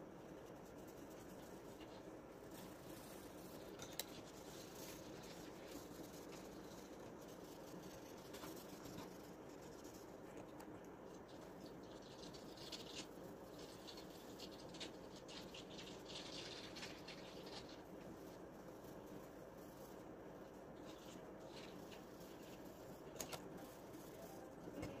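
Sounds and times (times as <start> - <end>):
low steady hum: 0.0 - 25.0
pencil scratching on paper: 0.2 - 10.7.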